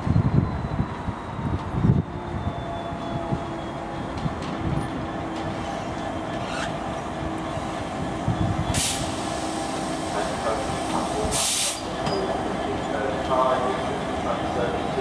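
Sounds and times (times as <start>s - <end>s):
wheels on rail: 0.0s - 15.0s
short burst of hiss: 11.4s - 11.9s.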